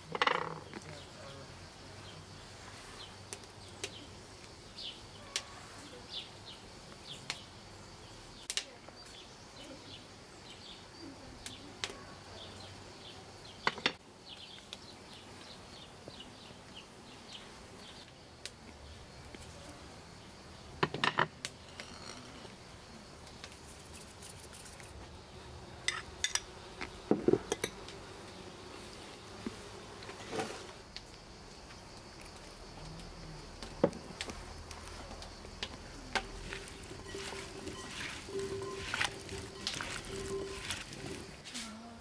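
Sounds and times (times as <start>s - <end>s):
small birds chirping: 0.3s - 20.8s, 31.0s - 41.4s.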